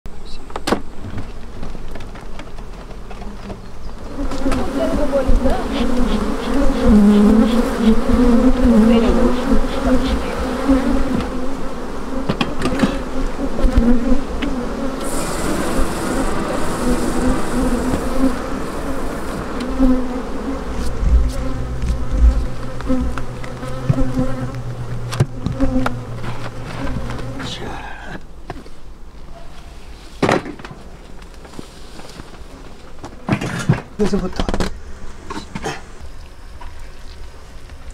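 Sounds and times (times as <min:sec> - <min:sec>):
honeybees buzzing: 0:00.4 - 0:29.1, 0:31.1 - 0:37.9
wooden hive frames knocking: 0:12.2 - 0:14.6, 0:20.7 - 0:27.4
steady low hum: 0:15.0 - 0:29.0.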